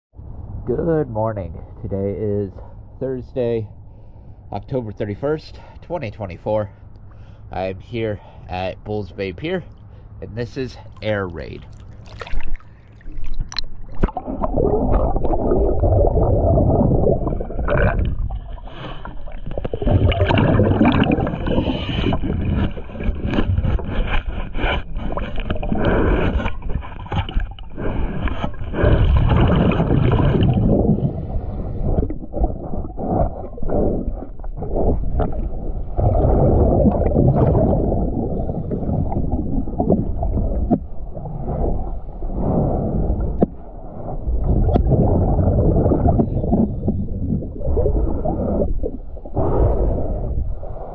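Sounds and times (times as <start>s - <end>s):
underwater bubbles gurgling: 11.0s - 50.9s.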